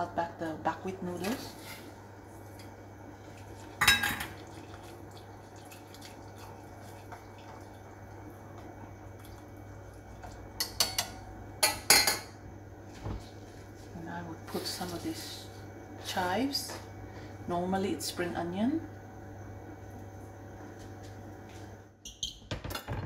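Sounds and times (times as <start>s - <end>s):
steady low hum: 0.0s - 22.0s
metal utensils clattering on pots: 3.8s - 4.4s, 10.6s - 12.3s.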